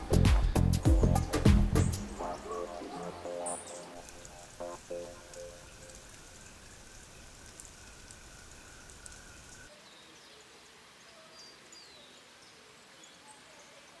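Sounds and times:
steady hiss: 0.0s - 14.0s
scattered ticks: 4.0s - 9.7s.

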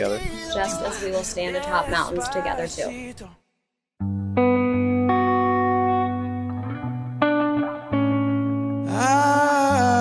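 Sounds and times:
guitar music: 4.0s - 10.0s.

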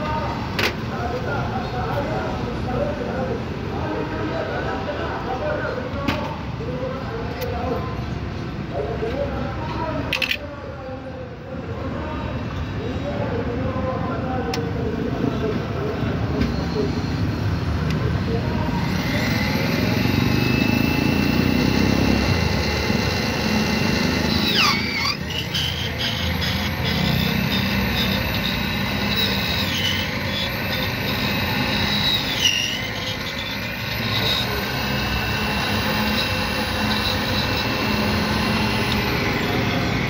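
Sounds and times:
key-duplicating machine motor whine: 16.6s - 40.0s.

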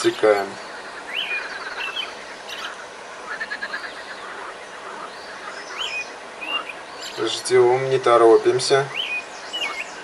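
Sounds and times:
birds chirping: 0.0s - 10.0s
outdoor background hiss: 0.0s - 10.0s.

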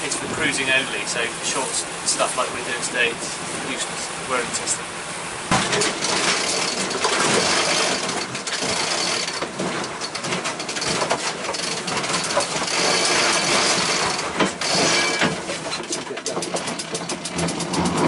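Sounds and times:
deck hardware clicking: 5.5s - 18.0s.

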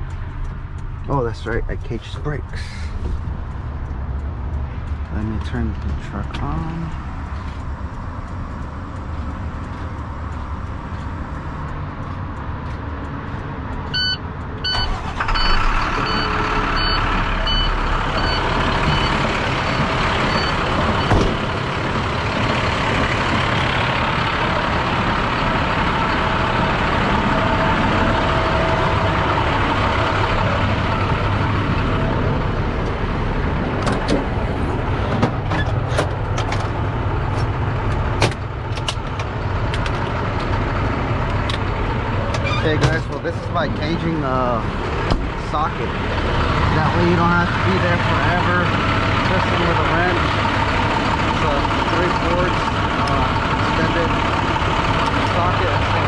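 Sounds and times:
diesel engine starting and idling: 13.0s - 56.0s
dashboard warning beeps: 13.9s - 21.3s.

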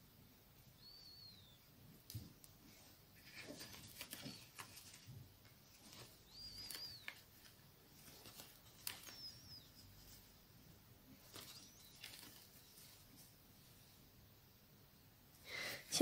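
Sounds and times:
high whistled chirps: 0.8s - 1.7s, 6.2s - 7.2s, 9.0s - 10.0s.

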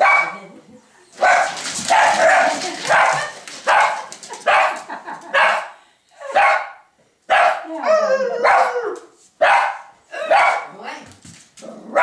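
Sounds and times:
small dog barking: 0.0s - 0.4s, 1.2s - 7.7s, 9.4s - 10.8s.

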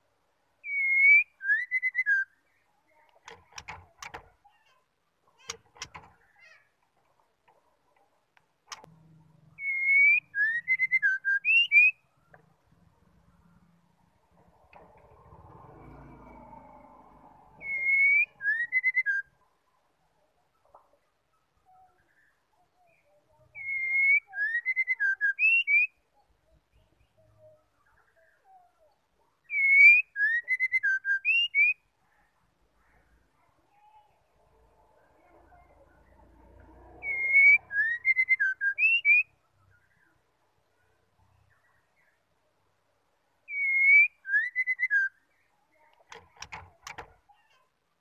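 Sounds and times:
bird singing whistled phrase: 0.6s - 2.4s, 9.6s - 12.0s, 17.6s - 19.3s, 23.6s - 26.0s, 29.5s - 31.8s, 37.0s - 39.3s, 43.5s - 45.2s.

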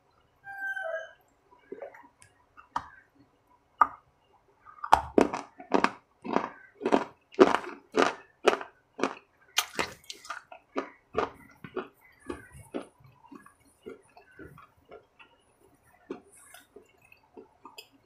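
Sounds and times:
crunchy food chewing: 4.7s - 18.0s.

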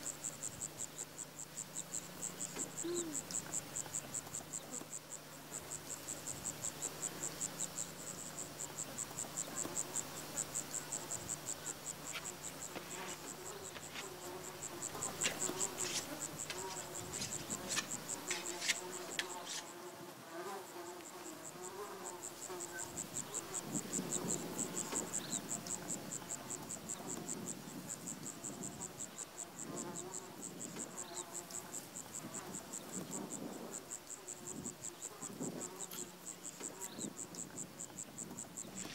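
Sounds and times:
insects chirping: 0.0s - 38.9s.

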